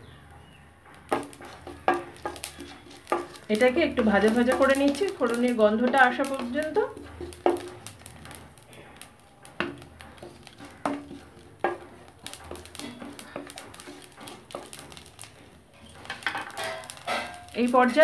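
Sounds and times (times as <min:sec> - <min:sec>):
faint sizzling: 0:00.0 - 0:18.0
spatula stirring spices: 0:00.1 - 0:18.0
spatula knocking against pan: 0:01.0 - 0:07.8.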